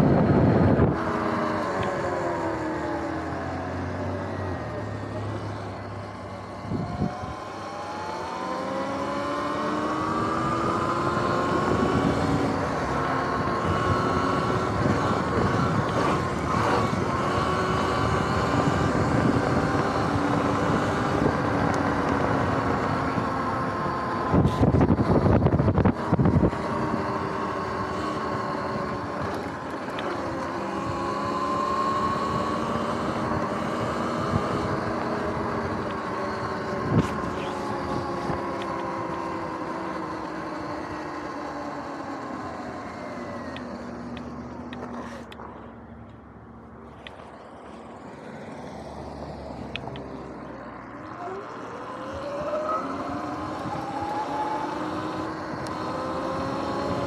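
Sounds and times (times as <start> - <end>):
tyre and ground noise: 0.0 - 57.0
electric motor and chain whining: 50.9 - 57.0.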